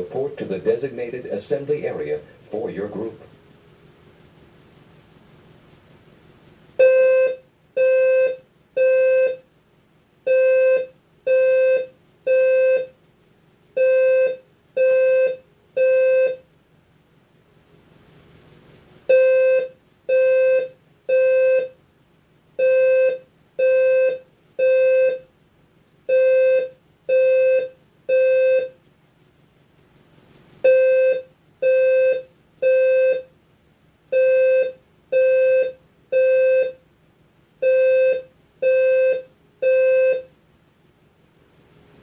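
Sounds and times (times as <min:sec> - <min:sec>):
fire alarm buzzy beeps: 0:06.8 - 0:09.5, 0:10.2 - 0:13.0, 0:13.8 - 0:16.5, 0:19.1 - 0:21.8, 0:22.6 - 0:25.3, 0:26.1 - 0:28.9, 0:30.6 - 0:33.4, 0:34.1 - 0:36.8, 0:37.6 - 0:40.4.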